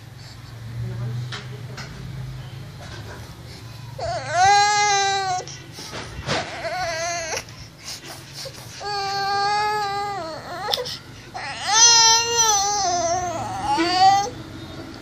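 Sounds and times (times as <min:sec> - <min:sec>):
baby crying: 0:04.0 - 0:05.5, 0:06.3 - 0:07.6, 0:08.7 - 0:14.3.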